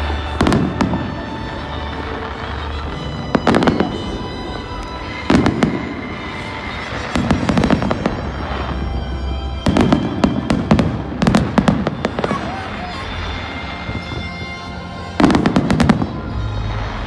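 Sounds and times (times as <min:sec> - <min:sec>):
fireworks bangs: 0:00.0 - 0:17.0
fireworks rumble and crackle: 0:00.0 - 0:17.0.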